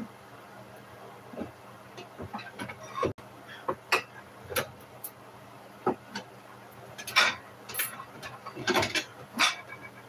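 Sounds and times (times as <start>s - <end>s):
kitchenware clatter: 7.0s - 10.0s
kitchenware clicking and knocking: 7.0s - 10.0s.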